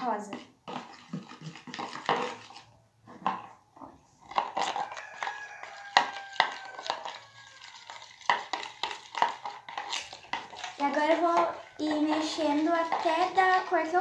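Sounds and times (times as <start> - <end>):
metal spoon scraping plastic bowl: 0.0 - 3.6, 4.2 - 14.0.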